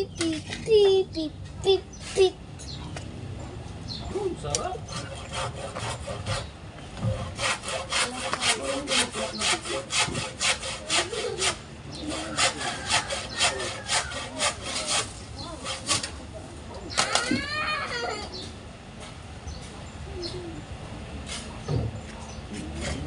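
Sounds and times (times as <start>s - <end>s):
hand saw cutting wood: 4.8s - 16.2s.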